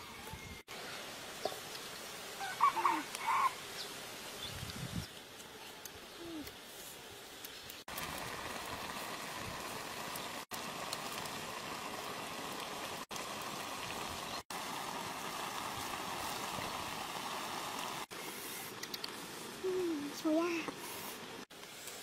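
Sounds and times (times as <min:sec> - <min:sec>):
broth boiling in wok: 0:07.4 - 0:22.0.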